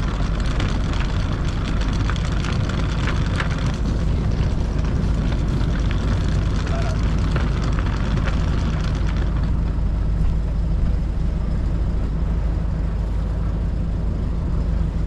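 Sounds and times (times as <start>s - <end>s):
light clicks and rattles: 0.0s - 11.0s
diesel engine humming: 0.0s - 15.0s.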